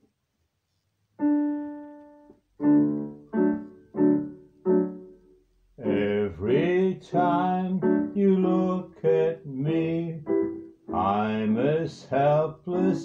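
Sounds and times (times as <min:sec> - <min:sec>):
piano chords: 0:01.2 - 0:13.0
man singing: 0:05.8 - 0:13.0.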